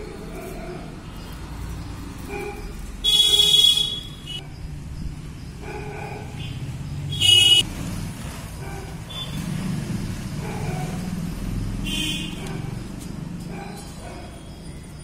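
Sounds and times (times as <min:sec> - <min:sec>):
horn honking: 0:03.0 - 0:04.4, 0:06.4 - 0:07.7, 0:11.8 - 0:12.8.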